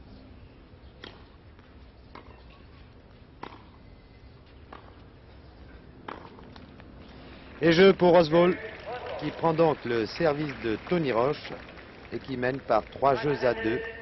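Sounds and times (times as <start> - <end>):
tennis ball hit with rackets: 1.0 - 1.3, 3.4 - 3.8, 4.7 - 5.0, 6.0 - 6.7.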